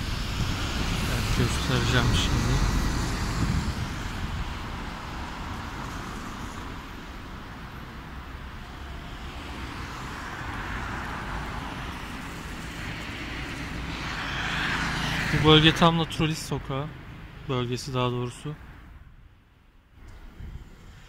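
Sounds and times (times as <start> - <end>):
city street traffic: 0.0 - 21.0.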